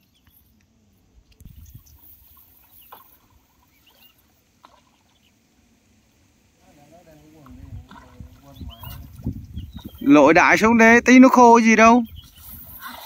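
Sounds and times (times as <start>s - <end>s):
water sloshing and splashing: 1.2s - 5.7s, 7.0s - 10.2s.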